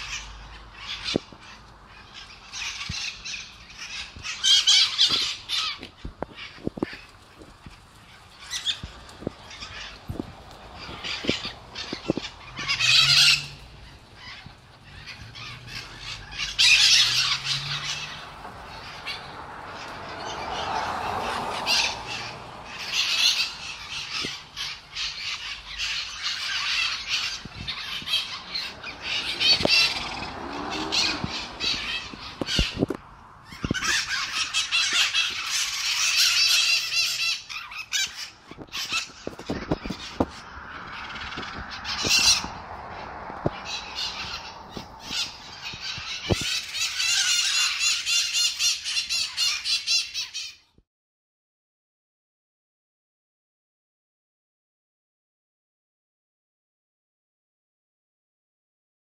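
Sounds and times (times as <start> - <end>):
parrots squawking: 0.0 - 50.7.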